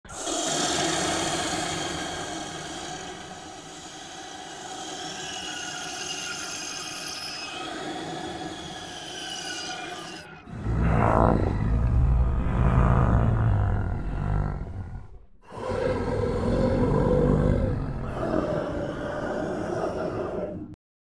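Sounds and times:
high sliding whining tones: 8.7s - 15.2s
hiss and rumble: 10.5s - 19.0s.

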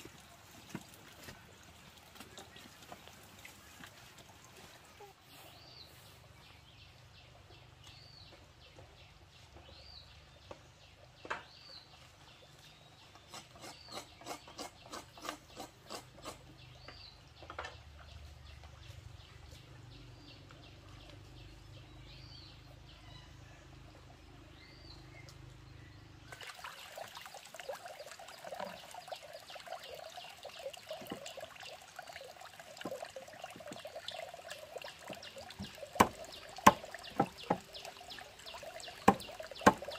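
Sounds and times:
stream running: 0.0s - 7.4s, 24.0s - 39.9s.

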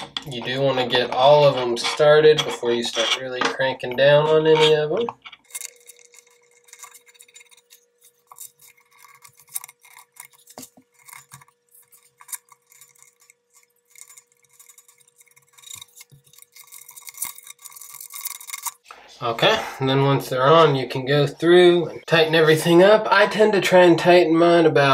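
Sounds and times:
small metallic clicks and scrapes: 0.0s - 18.9s.

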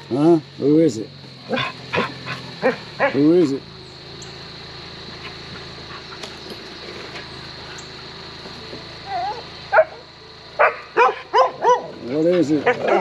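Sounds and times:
steady low hum: 0.0s - 13.0s
dog whining: 9.0s - 9.9s
dog barking: 9.2s - 10.0s, 10.6s - 12.0s, 12.6s - 13.0s.

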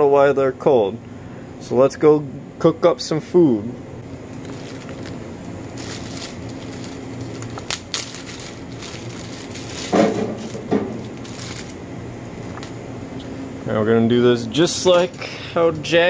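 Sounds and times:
steady low hum: 0.0s - 16.0s
plastic bag crinkling: 4.2s - 11.8s.

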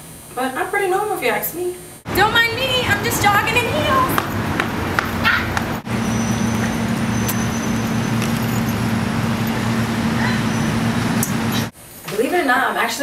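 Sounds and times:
low mechanical hum: 0.0s - 12.2s
noisy background: 1.8s - 11.8s.

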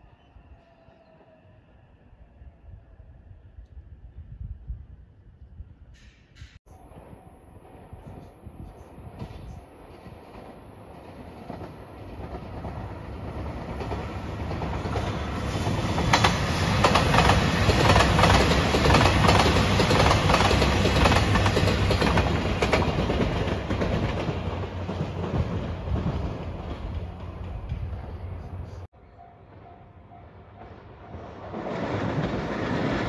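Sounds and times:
diesel train engine rumble: 6.0s - 33.0s
train wheels clicking over rail joints: 9.2s - 28.5s.

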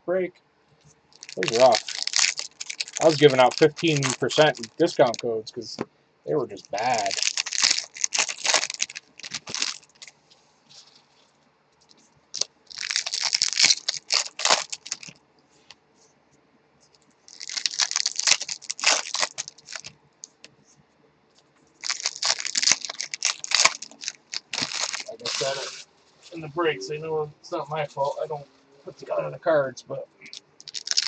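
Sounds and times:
foil wrappers tearing and crinkling: 1.2s - 5.2s, 6.7s - 10.1s, 12.4s - 15.2s, 17.3s - 20.4s, 21.8s - 25.8s, 30.3s - 31.0s.

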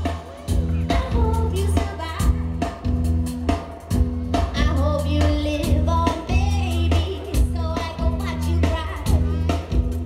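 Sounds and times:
live band playing: 0.0s - 10.0s
woman singing: 0.9s - 2.6s, 4.5s - 9.6s.

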